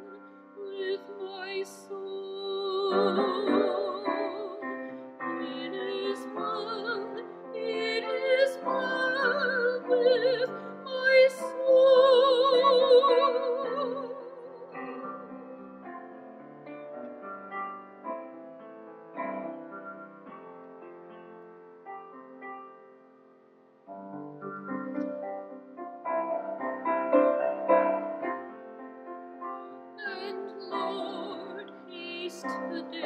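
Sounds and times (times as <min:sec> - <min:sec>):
woman singing classical solo: 0:00.0 - 0:15.3, 0:30.0 - 0:33.0
grand piano: 0:00.0 - 0:33.0.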